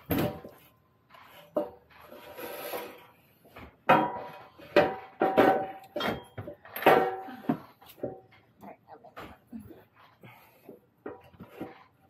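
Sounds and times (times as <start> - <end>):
metal scraping: 0.0 - 9.2
metal clanking and knocking: 3.8 - 8.5.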